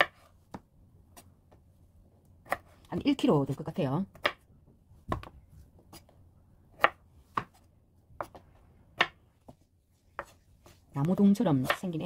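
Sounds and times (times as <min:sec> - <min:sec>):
knife chopping on wooden board: 0:02.4 - 0:03.1, 0:06.8 - 0:07.6, 0:09.0 - 0:09.2.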